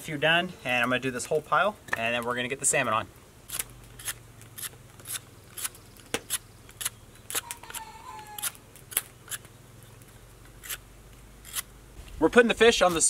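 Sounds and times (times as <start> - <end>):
knife scraping bark off stick: 3.5 - 9.5, 10.5 - 10.8, 11.4 - 11.7.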